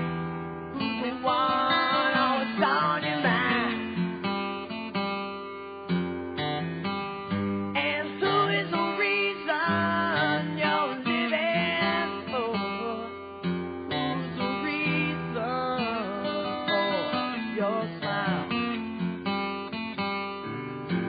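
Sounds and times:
strummed acoustic guitar: 0.0 - 21.0
person singing: 0.7 - 4.0, 7.8 - 13.2, 13.9 - 19.0.

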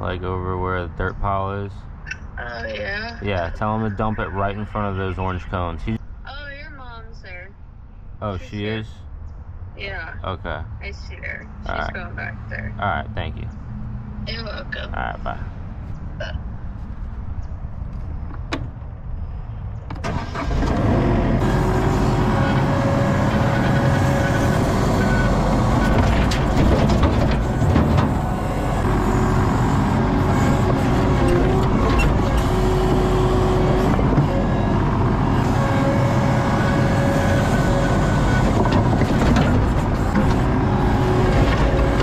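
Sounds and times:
diesel engine revving: 2.5 - 6.0, 20.0 - 42.0.

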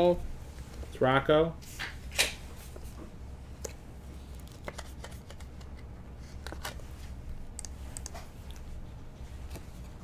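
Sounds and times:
steady low hum: 0.0 - 10.0
cards rustling and clicking: 3.6 - 8.8.

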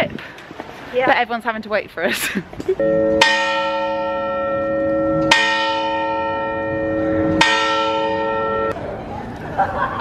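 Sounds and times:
church bell tolling: 2.8 - 8.8.

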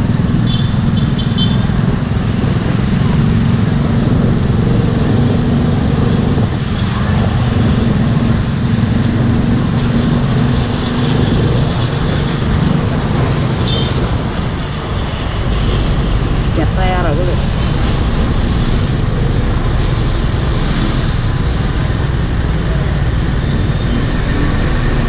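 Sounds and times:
surrounding traffic noise: 0.0 - 25.0
brief high squeak: 18.8 - 19.4.

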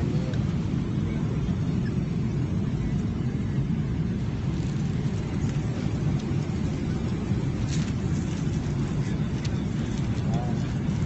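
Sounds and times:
airliner cabin rumble: 0.0 - 11.0.

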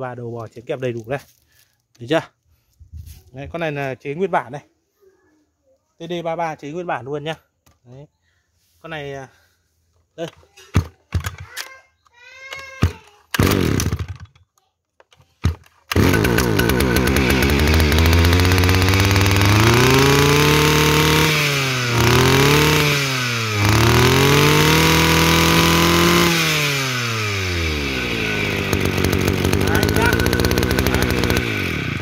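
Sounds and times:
brush cutter engine starting and revving: 12.8 - 14.4, 15.4 - 32.0.

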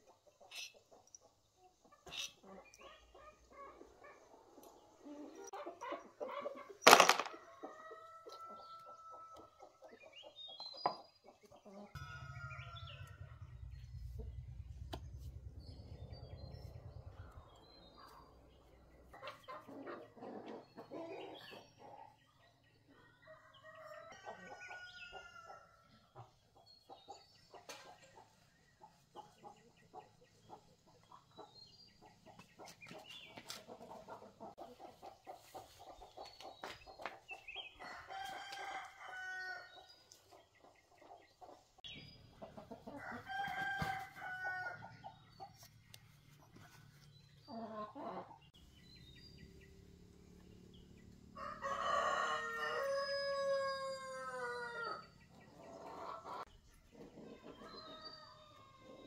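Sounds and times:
rooster crowing: 43.0 - 44.9, 51.4 - 55.1.

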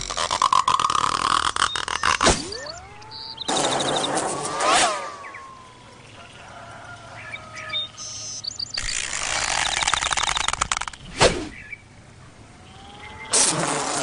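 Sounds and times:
cartoon bird chirps: 1.4 - 5.8
rapid fluttering rattle: 8.8 - 11.1.

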